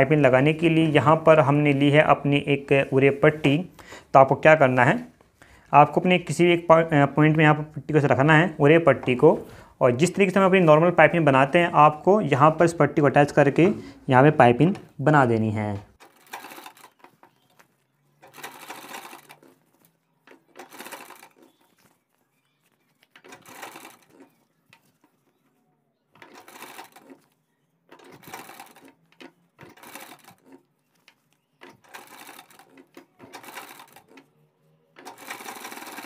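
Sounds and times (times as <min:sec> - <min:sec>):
sewing machine stitching: 0:16.0 - 0:22.0, 0:22.9 - 0:36.0.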